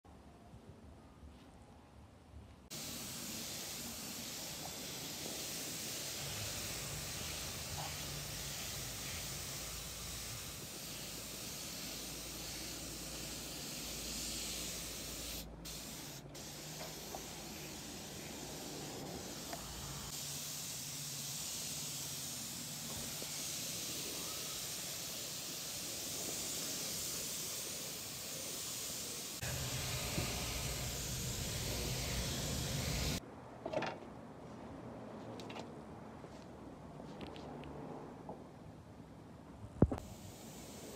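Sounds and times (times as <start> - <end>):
paint spray gun hissing: 2.7 - 33.2, 40.0 - 40.9.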